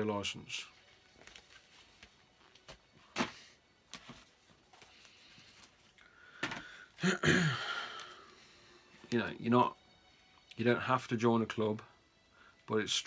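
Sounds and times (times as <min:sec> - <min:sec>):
rustling and scraping: 0:00.8 - 0:06.6
book knocks and clicks: 0:06.4 - 0:06.7.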